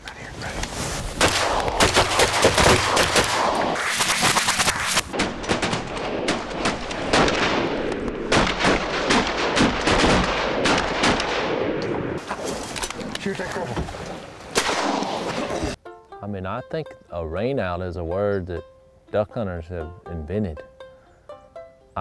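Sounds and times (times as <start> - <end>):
shotgun blasts volley: 14.5 - 15.8.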